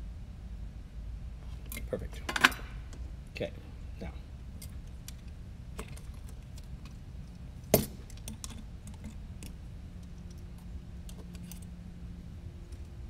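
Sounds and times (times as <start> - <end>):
drone frame parts clicking: 4.6 - 11.8.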